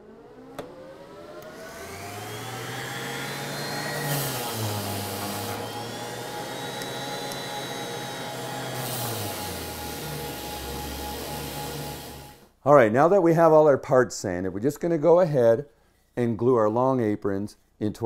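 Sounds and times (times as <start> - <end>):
vacuum motor whine: 0.0 - 12.5
orbit sander hissing on wood: 1.8 - 12.5.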